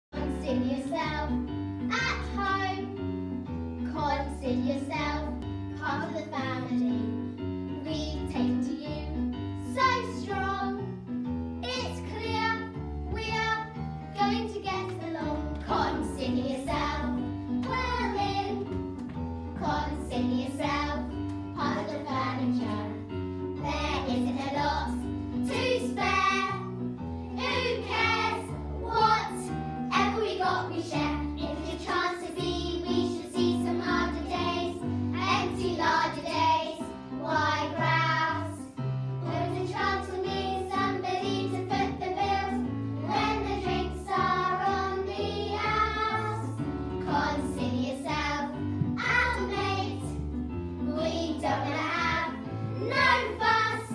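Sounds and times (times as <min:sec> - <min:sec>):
musical accompaniment low notes: 0:00.2 - 0:53.9
girls singing together: 0:51.0 - 0:53.9.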